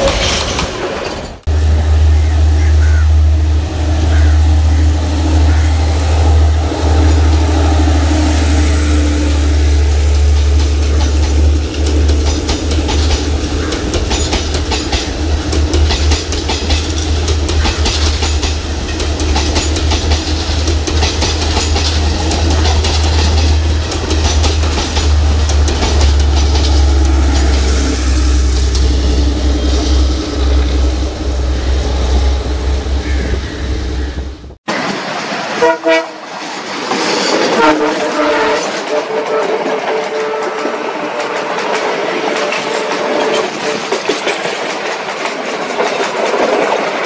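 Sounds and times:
diesel train engine droning: 0.0s - 45.4s
wheels clicking over rail joints: 9.6s - 30.9s, 36.3s - 47.0s.

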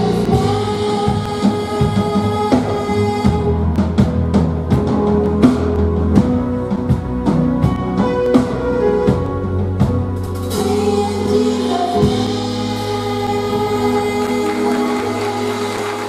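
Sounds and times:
woman singing gospel song: 0.0s - 3.7s, 10.5s - 16.0s
instrumental accompaniment: 0.0s - 16.0s.

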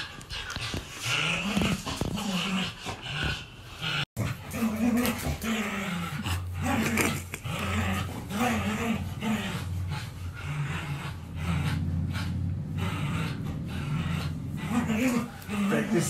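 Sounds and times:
dog growling: 0.0s - 16.0s
steady low rumble: 6.0s - 16.0s.

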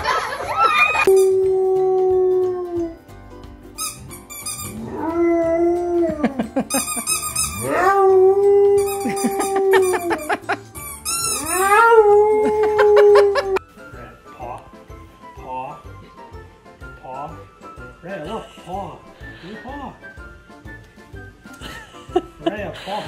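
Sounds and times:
dog howling: 1.0s - 3.0s, 4.7s - 6.4s, 7.6s - 10.2s, 11.3s - 13.6s.

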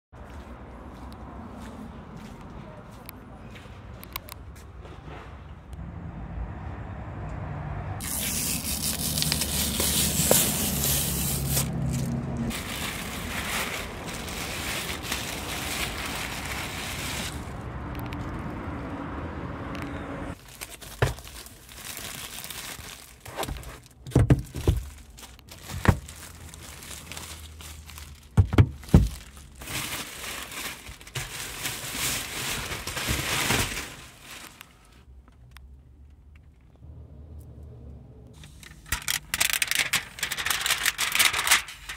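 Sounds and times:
plastic film tearing and rustling: 8.0s - 17.5s, 20.4s - 34.8s, 38.8s - 41.9s.

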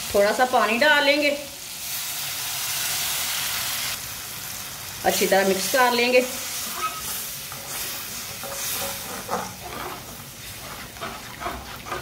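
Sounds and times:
sauce sizzling in a pan: 0.0s - 12.0s
metal ladle scraping a pan: 6.5s - 12.0s.

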